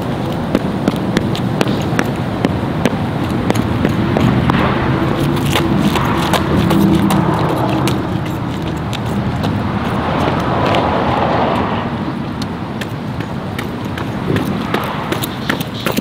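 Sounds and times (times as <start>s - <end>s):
car passing: 0.0s - 16.0s
road traffic rush: 0.0s - 16.0s.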